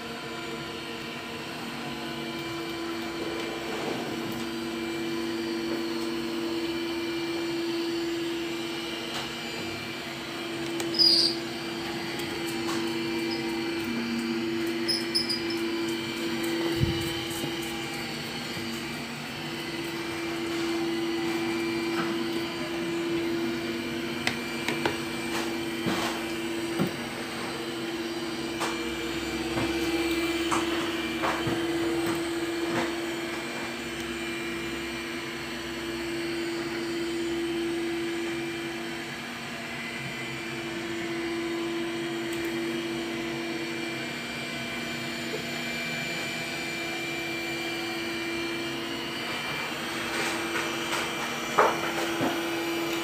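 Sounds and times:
suction fan whine: 0:00.0 - 0:53.0.

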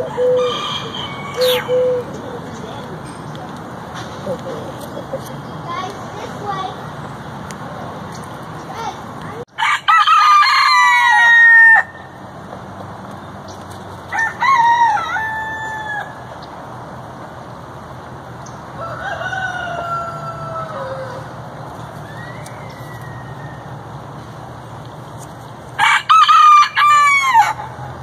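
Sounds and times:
roosters crowing: 0:00.0 - 0:02.4, 0:09.5 - 0:12.3, 0:13.9 - 0:16.4, 0:18.5 - 0:24.4, 0:25.7 - 0:28.0.

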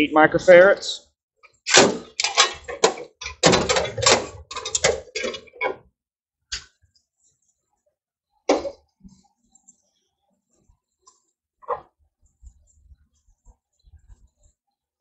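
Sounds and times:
clicks and knocks in metal box: 0:01.7 - 0:05.8.

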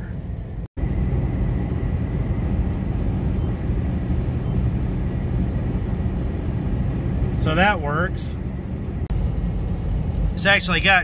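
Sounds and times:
car engine and tyres rumbling: 0:00.0 - 0:11.0.

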